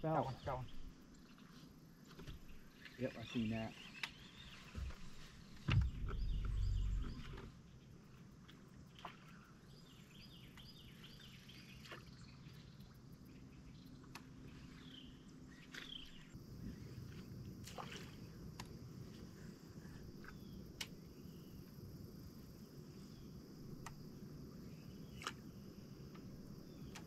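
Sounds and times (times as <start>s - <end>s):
small birds chirping: 0.0s - 18.3s, 19.2s - 27.0s
loud low rumble: 5.7s - 7.4s.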